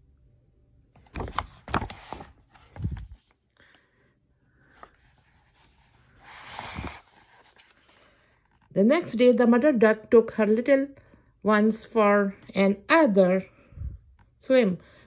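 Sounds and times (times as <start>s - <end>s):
paper rustling: 1.0s - 3.4s, 4.6s - 8.7s.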